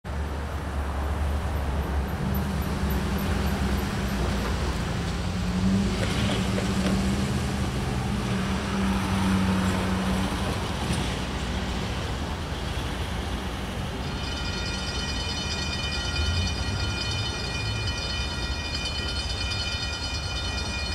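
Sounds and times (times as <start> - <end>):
diesel locomotives rumbling: 0.1 - 20.9
road traffic passing: 0.1 - 20.9
horn held steady: 13.9 - 20.9.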